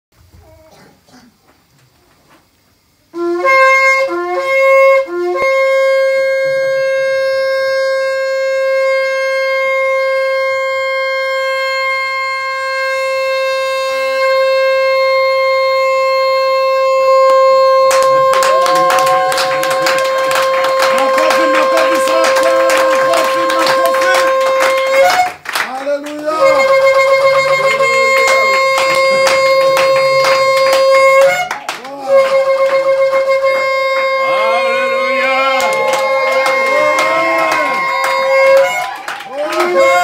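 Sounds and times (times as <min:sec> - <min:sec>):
shofar blasts: 0:03.2 - 0:40.0
people clapping: 0:17.1 - 0:40.0.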